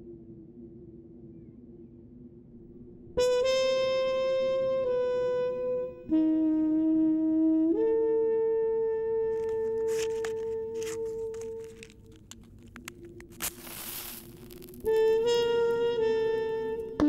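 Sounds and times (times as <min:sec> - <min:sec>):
short crackles: 0:09.3 - 0:17.0
solo trumpet playing long notes: 0:14.8 - 0:17.0.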